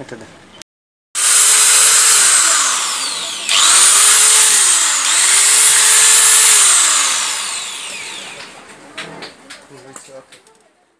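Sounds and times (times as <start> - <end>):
angle grinder motor whining: 1.2 - 8.7.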